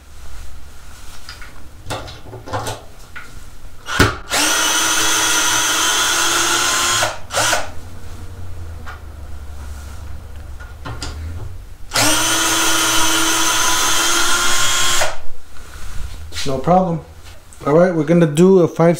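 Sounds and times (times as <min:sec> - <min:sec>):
cordless drill running: 0:03.8 - 0:07.8, 0:11.9 - 0:15.3.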